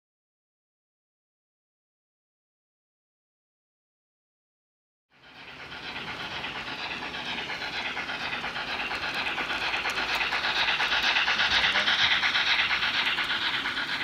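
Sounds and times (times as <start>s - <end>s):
model train wheels rolling rhythmically: 5.1s - 14.0s.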